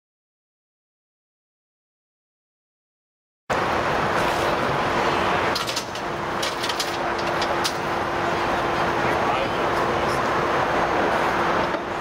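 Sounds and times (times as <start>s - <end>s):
vehicle engine humming: 3.5s - 12.0s.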